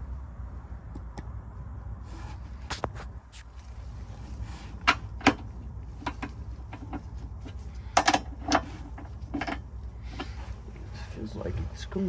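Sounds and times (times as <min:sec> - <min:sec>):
low steady hum: 0:00.0 - 0:12.0
metallic clicks of nuts and bolts: 0:04.8 - 0:10.4.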